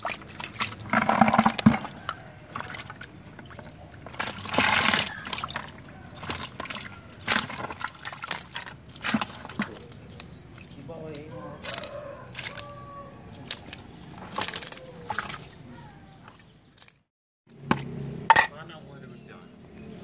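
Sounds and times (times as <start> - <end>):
water pouring from bucket: 0.0 - 10.8, 13.4 - 15.6.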